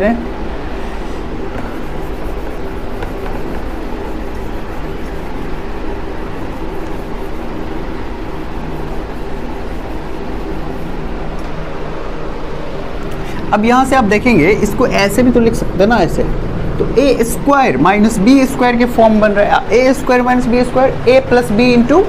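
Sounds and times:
steady background hum: 0.0s - 22.0s
duster wiping a whiteboard: 1.1s - 11.8s.

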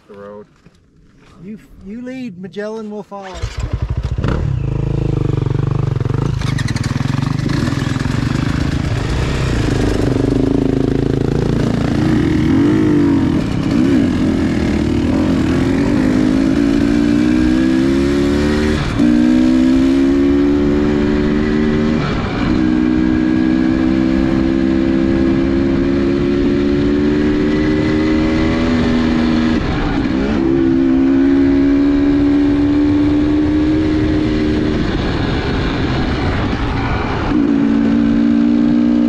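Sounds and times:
dirt bike engine revving: 3.2s - 39.0s.

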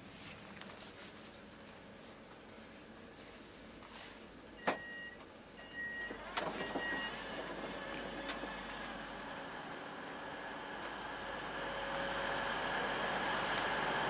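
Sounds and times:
two-tone door alert beeps: 4.6s - 7.3s.

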